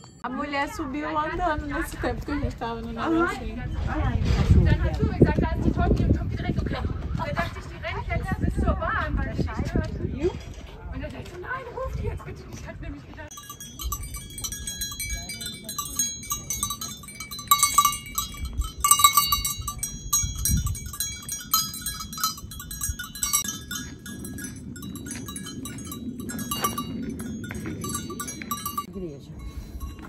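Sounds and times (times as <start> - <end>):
livestock bells clanking: 13.3 - 30.0.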